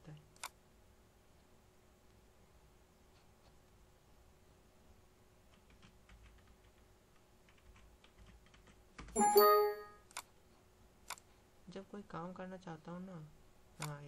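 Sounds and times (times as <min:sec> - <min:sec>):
computer keyboard clicks: 0:05.5 - 0:09.2
short bright system chime: 0:09.2 - 0:10.0.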